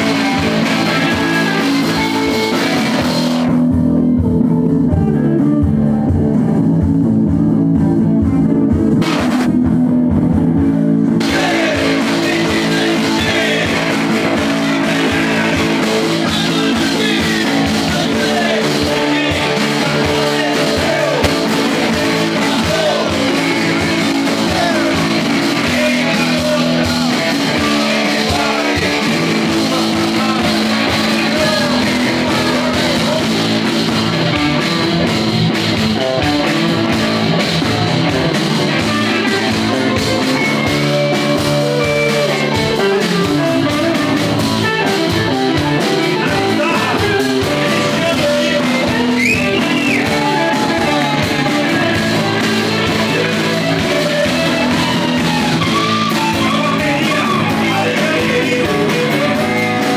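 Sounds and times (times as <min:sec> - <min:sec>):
man singing into a microphone: 0:00.0 - 0:03.0, 0:11.2 - 0:33.8, 0:45.6 - 0:59.9
drums: 0:00.0 - 0:59.9
electric guitars: 0:00.0 - 0:59.9.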